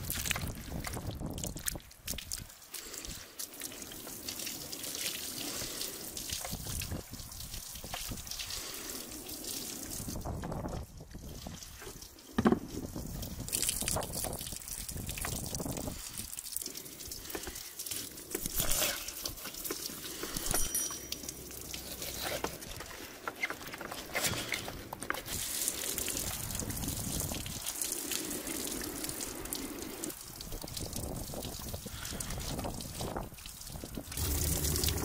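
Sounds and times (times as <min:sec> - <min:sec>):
water pouring from a hose: 0:00.0 - 0:35.0
wet handling knocks: 0:12.4 - 0:12.7
knife scraping fish: 0:21.8 - 0:22.6.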